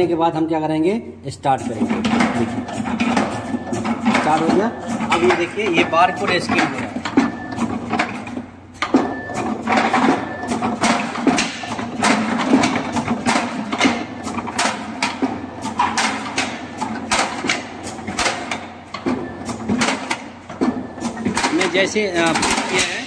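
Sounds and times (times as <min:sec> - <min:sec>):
machine clacking and knocking: 0:01.5 - 0:23.0
short beeps: 0:05.5 - 0:06.5.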